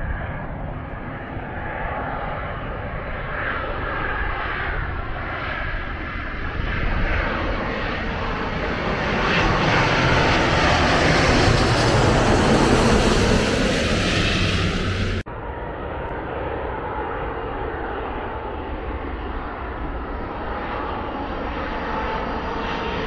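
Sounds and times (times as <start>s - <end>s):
jet engine rushing: 0.0s - 15.6s.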